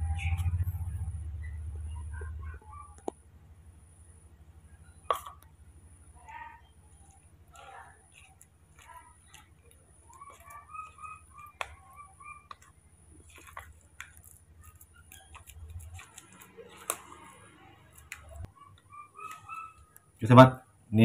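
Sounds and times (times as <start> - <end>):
spoon scraping plastic bowl: 5.0 - 5.5, 6.7 - 20.3
short high chirping calls: 18.3 - 20.0.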